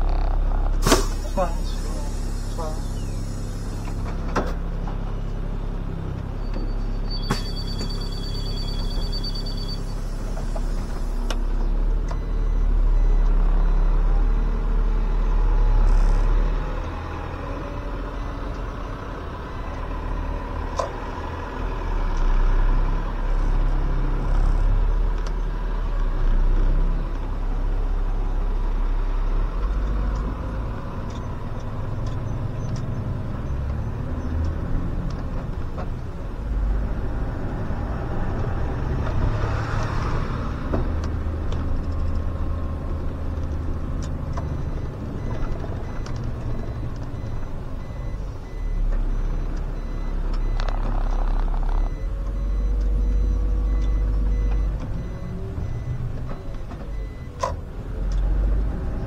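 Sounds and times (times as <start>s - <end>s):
bus diesel engine: 0.0s - 59.0s
sharp clunk: 0.8s - 1.2s, 7.2s - 8.0s
pulsing door warning beeper: 6.5s - 10.0s.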